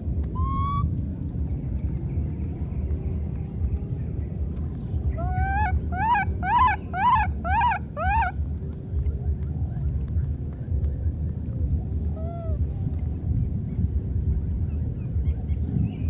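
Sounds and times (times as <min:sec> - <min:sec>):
low rumble: 0:00.0 - 0:16.0
baby monkey squealing: 0:00.4 - 0:00.9, 0:05.2 - 0:08.3.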